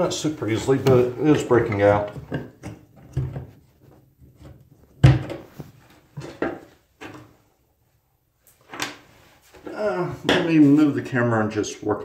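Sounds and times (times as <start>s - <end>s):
metal tool knocking and scraping drain: 0.6s - 3.6s.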